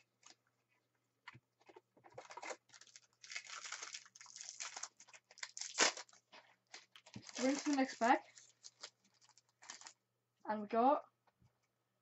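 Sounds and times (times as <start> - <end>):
wrapper crinkling and tearing: 2.2 - 10.0.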